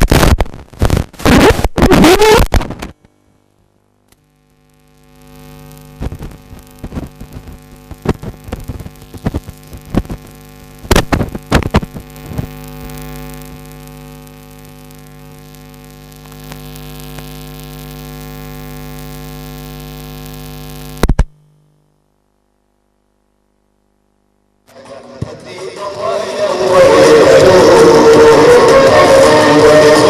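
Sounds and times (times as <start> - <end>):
microphone knocks and pops: 0.0 - 3.0, 6.0 - 12.6
electrical hum from speakers: 0.0 - 30.0.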